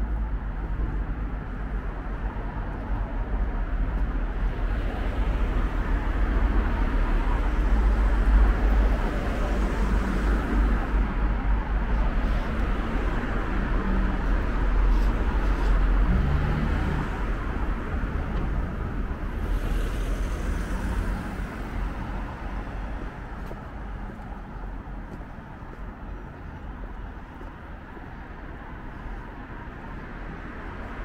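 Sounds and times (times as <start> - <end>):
busy road traffic rumble: 0.0 - 31.0
vehicles passing: 0.0 - 31.0.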